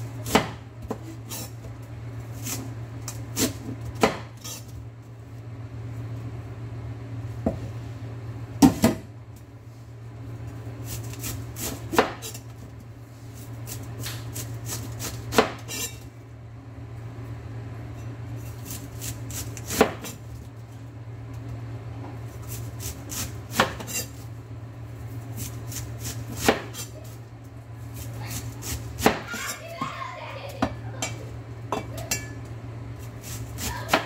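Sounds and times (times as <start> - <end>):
cleaver slicing cabbage: 10.8 - 12.5, 13.4 - 16.0, 18.4 - 20.2, 22.3 - 24.2, 25.2 - 27.2, 28.0 - 29.8, 33.0 - 34.0.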